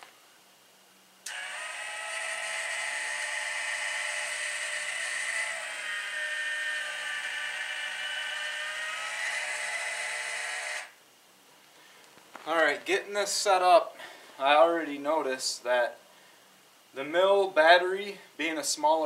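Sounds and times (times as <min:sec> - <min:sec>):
grinding motor whine: 0:01.3 - 0:11.0.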